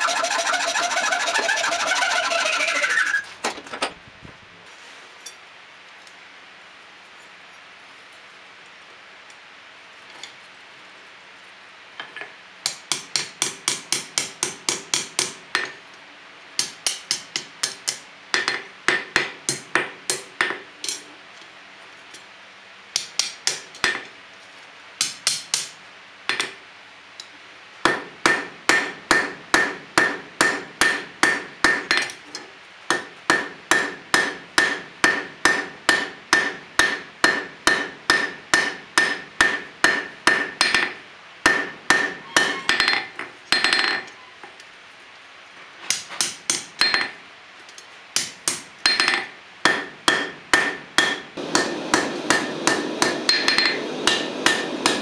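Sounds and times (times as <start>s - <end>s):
hammer striking metal on anvil: 12.6s - 15.8s, 16.6s - 21.0s, 23.0s - 24.1s, 25.0s - 25.7s, 27.8s - 32.2s, 32.9s - 44.1s, 45.9s - 47.2s, 48.2s - 55.0s.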